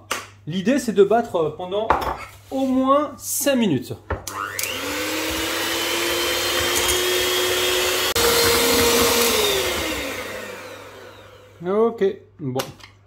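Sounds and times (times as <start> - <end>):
electric hand mixer whipping: 4.2 - 11.7.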